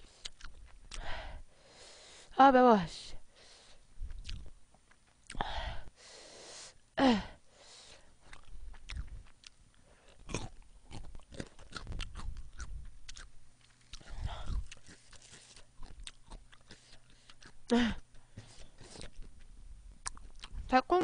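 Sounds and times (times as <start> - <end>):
chewing food: 0.1 - 1.1, 4.0 - 5.5, 8.2 - 20.7.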